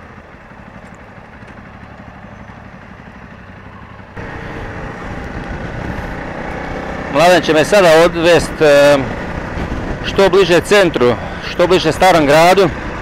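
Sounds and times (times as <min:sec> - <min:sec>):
motorcycle engine running at low speed: 0:00.0 - 0:13.0.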